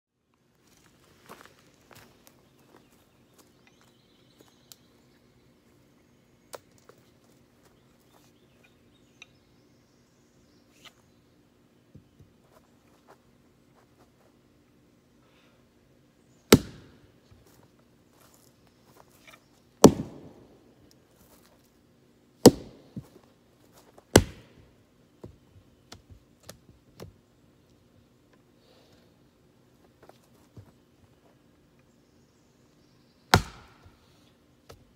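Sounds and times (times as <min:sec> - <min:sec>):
hatchet chopping wood: 0:16.5 - 0:17.0, 0:19.8 - 0:20.4, 0:22.4 - 0:22.8, 0:24.1 - 0:24.5, 0:33.3 - 0:33.9.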